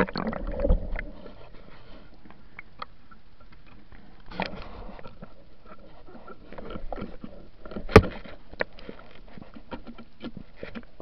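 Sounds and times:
underwater crackling and clicking: 0.0 - 11.0.

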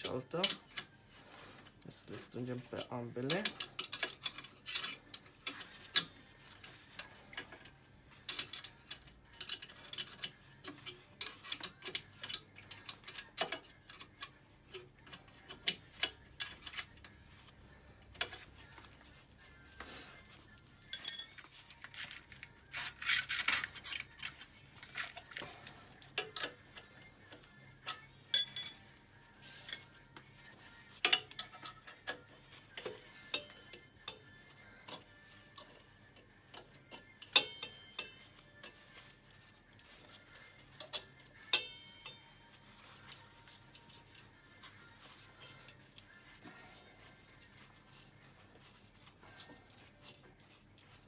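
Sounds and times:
spanner clinking on bolts: 20.9 - 21.5, 28.3 - 29.9, 37.4 - 38.3, 41.6 - 42.3.

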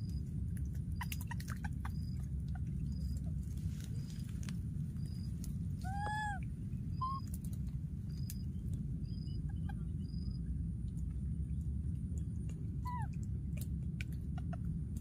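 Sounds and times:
low rumble: 0.0 - 15.0
baby monkey cooing: 5.8 - 6.4, 7.0 - 7.4
monkey squeak: 5.8 - 6.4, 7.0 - 7.3, 12.9 - 13.1.

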